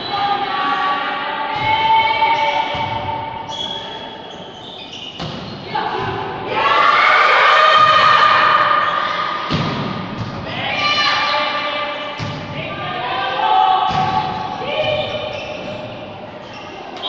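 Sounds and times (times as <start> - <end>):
spectators shouting and chanting: 5.7 - 11.9.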